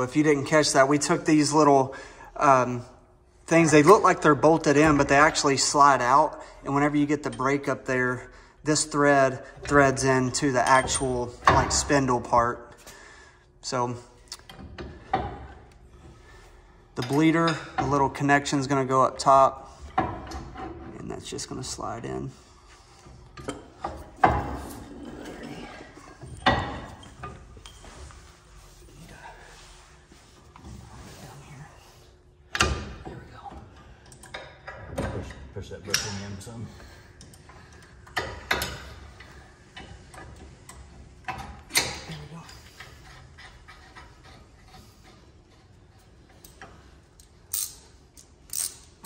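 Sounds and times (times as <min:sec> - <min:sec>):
metal parts clicking: 0:46.4 - 0:49.0.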